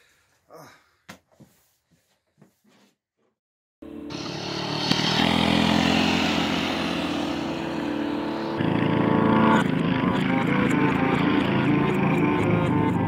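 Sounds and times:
mini-bike engines running: 4.1 - 13.0.

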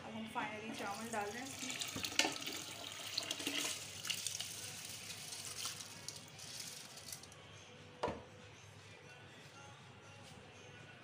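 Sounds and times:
wet rice pouring into pot: 0.8 - 7.3.

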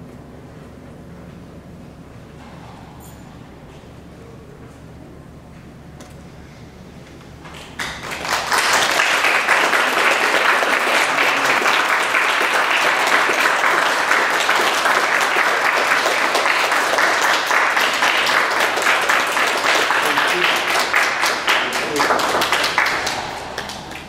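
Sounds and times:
audience applauding: 7.6 - 24.0.

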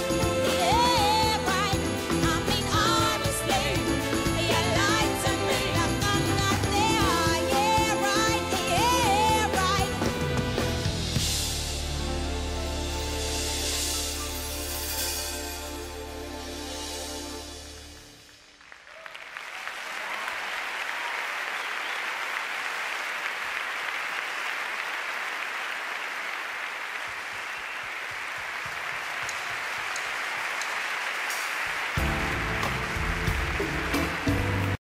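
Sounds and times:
music: 0.0 - 18.8, 31.3 - 34.8
crowd applauding: 17.6 - 34.8.

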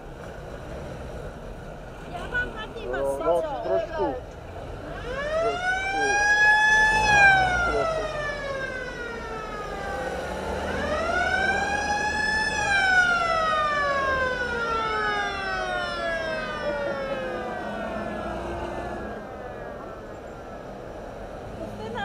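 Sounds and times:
siren winding up and down: 5.0 - 19.2.

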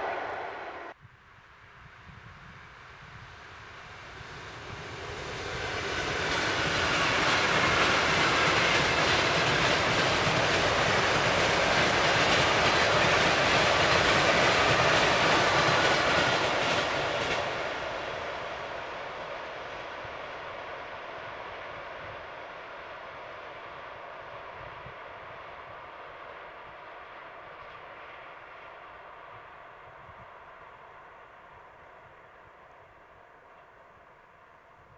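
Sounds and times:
electric train passing: 0.0 - 1.0, 1.6 - 29.8
wheels rumbling and rail clatter: 3.3 - 20.4.

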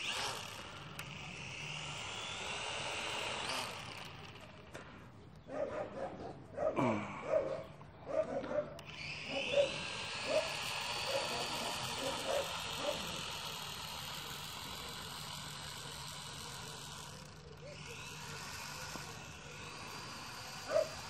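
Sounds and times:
toy drone motors whining: 0.0 - 5.0, 8.8 - 21.0.

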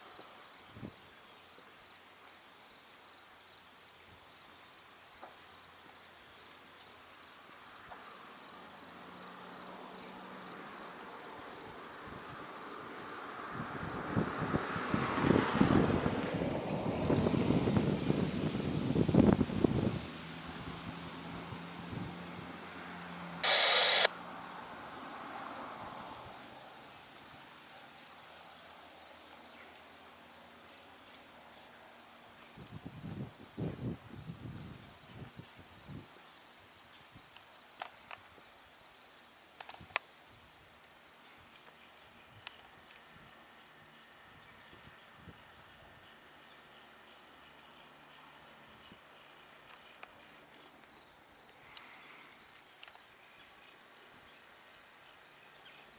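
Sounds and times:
crickets and insects trilling: 0.0 - 55.9
brief loud noise: 23.4 - 24.1.

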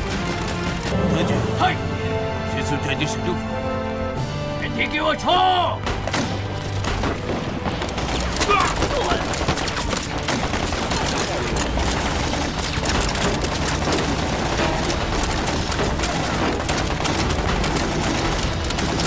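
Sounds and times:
heavy continuous gunfire: 0.0 - 1.1, 5.8 - 19.0.

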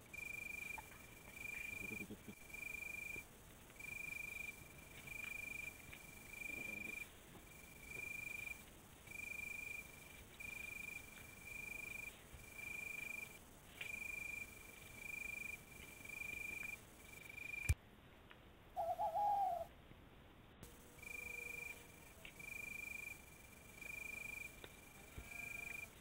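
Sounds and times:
animal's high steady call: 18.8 - 19.7, 21.0 - 26.0
wavering lower animal call: 18.8 - 19.7, 24.2 - 26.0.

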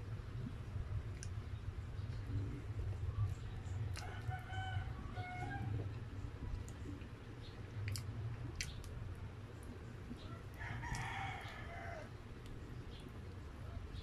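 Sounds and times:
steady low hum: 0.0 - 14.0
wet clicks of eating: 1.0 - 2.3, 5.7 - 11.1
rooster crowing: 4.0 - 5.8, 10.3 - 12.1.

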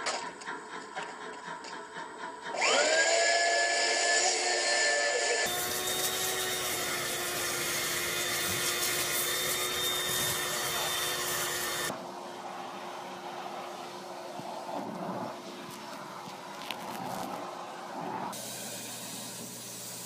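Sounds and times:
vacuum cleaner running: 2.5 - 14.7.

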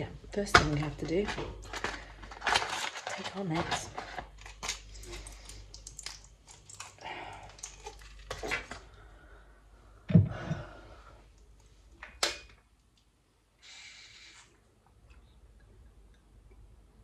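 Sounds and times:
pill packaging clicks and crinkles: 1.4 - 8.8.

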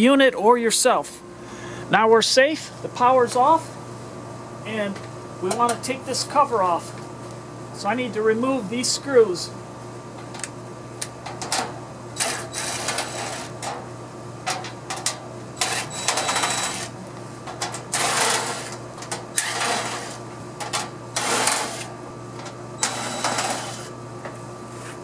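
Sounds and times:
cordless drill motor: 12.2 - 13.5, 15.6 - 16.9, 17.9 - 18.8, 19.4 - 20.2, 21.2 - 21.9, 22.8 - 23.9.

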